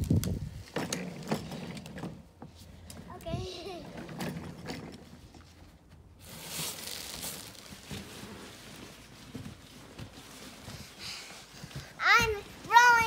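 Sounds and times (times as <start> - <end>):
fabric rustling: 5.4 - 13.0.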